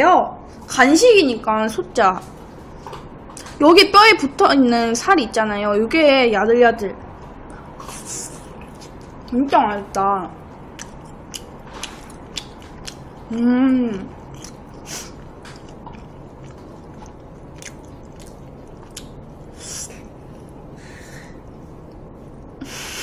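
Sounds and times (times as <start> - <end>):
chewing and biting: 10.7 - 13.2, 14.2 - 20.7
person humming: 13.3 - 14.1
wet clicks and smacks: 15.4 - 19.2.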